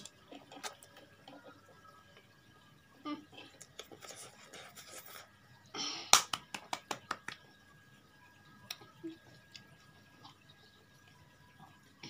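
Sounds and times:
child chewing and slurping: 0:03.1 - 0:06.1.

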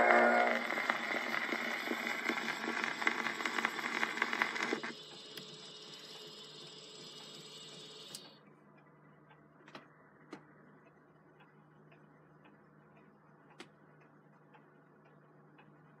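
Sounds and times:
phonograph cylinder hiss: 0:00.0 - 0:08.4
faint mechanical ticking: 0:00.0 - 0:16.0.

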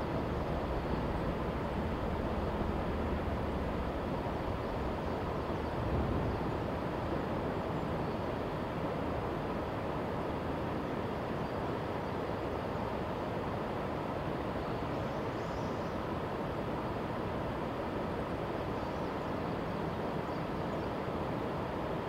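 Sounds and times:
distant electric train rumbling: 0:00.0 - 0:07.7.

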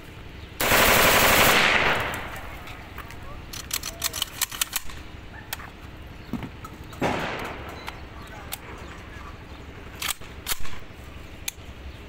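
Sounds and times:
rifle shots: 0:00.6 - 0:02.7, 0:07.0 - 0:07.8.

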